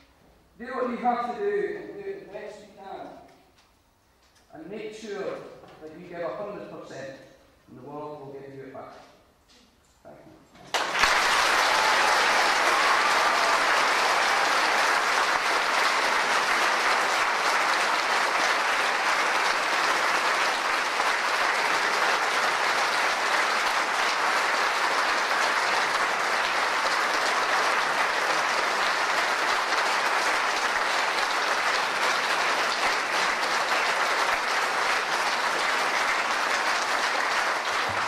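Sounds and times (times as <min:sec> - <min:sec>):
audience applauding: 0:10.7 - 0:38.0.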